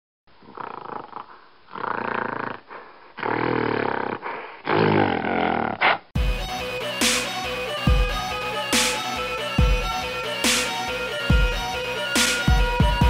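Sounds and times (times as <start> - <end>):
gorilla roaring: 0.4 - 6.0
electronic dubstep music: 6.2 - 13.0.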